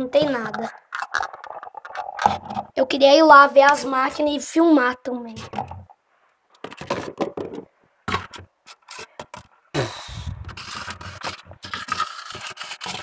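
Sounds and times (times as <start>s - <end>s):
plastic cups scraping and rubbing: 0.0s - 3.0s, 5.2s - 13.0s.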